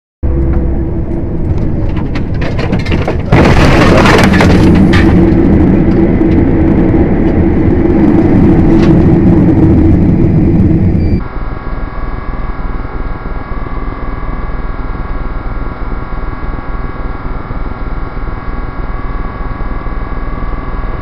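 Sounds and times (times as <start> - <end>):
road noise: 0.2 - 3.3
vehicle engine drone: 0.2 - 21.0.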